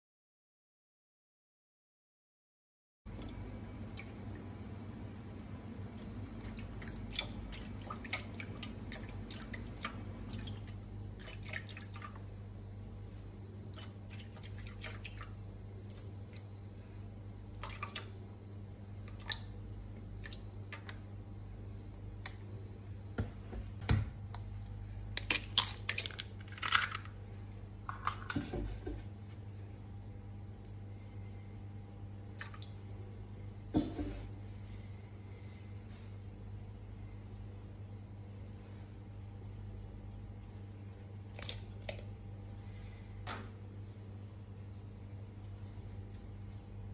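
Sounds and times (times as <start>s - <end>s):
low hum: 12.0s - 46.9s
egg cracking: 24.1s - 27.2s
drips: 32.3s - 33.0s.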